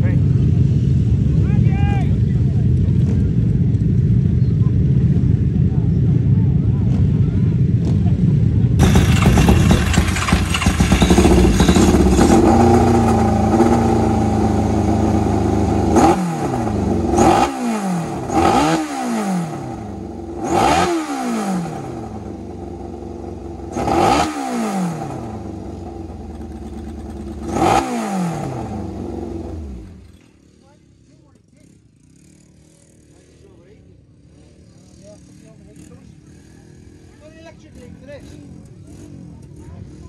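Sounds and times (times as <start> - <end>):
motorcycle engine revving: 8.8 - 30.8.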